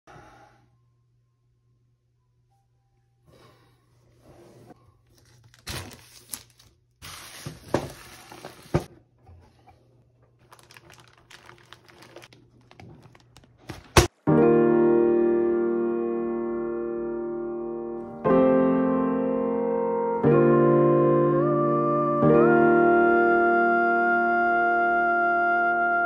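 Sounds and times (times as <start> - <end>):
plastic bag crinkling: 5.1 - 8.9, 10.4 - 14.0
piano music: 14.2 - 26.0.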